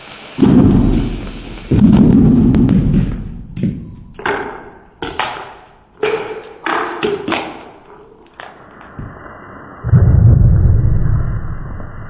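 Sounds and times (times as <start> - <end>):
firework blasts: 0.0 - 4.2
firework debris knocking: 0.4 - 5.5.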